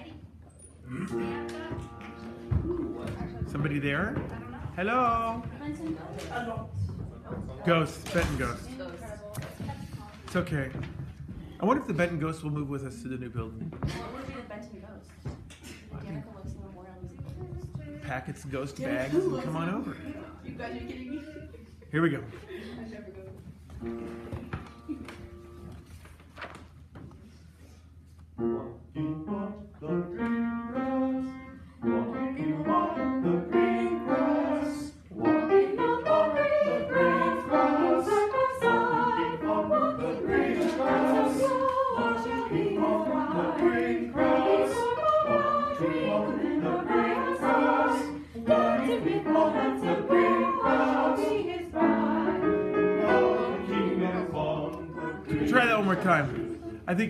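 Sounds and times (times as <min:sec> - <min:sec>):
small choir singing: 0:29.2 - 0:56.8.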